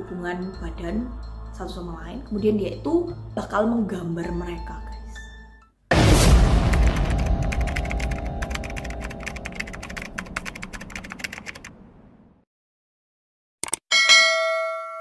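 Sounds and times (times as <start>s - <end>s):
deep boom: 5.9s - 11.0s
rapid typing clicks: 7.5s - 11.7s.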